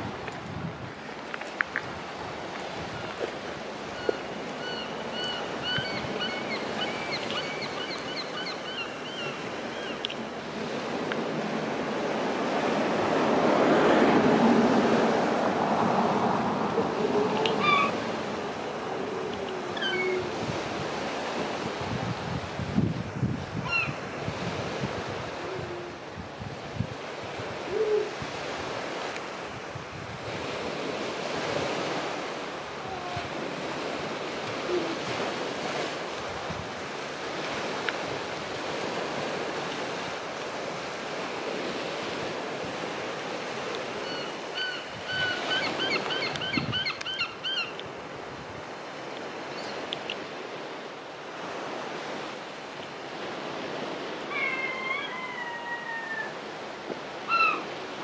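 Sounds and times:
sea surf washing on shore: 0:00.0 - 0:58.0
high-pitched animal calls: 0:17.4 - 0:18.0, 0:54.3 - 0:56.4, 0:57.3 - 0:57.7.

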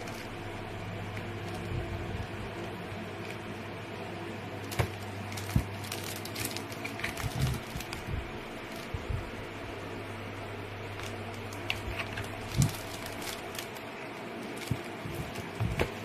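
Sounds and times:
steady low hum: 0:00.0 - 0:16.0
plastic shelves clicking and knocking: 0:14.5 - 0:16.0.

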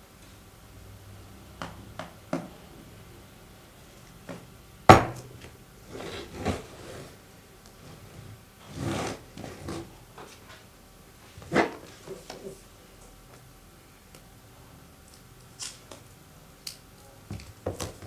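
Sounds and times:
packaging rustling and sliding: 0:05.9 - 0:07.2.

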